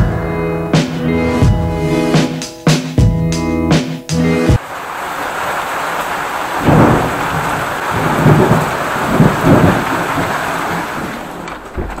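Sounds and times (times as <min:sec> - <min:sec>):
heavy rain on metal roofs: 0:04.6 - 0:12.0.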